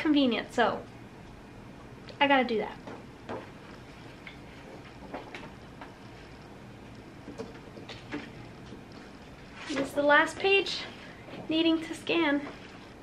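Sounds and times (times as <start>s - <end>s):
low room hum: 0.0s - 13.0s
faint clicks and taps: 2.8s - 9.4s.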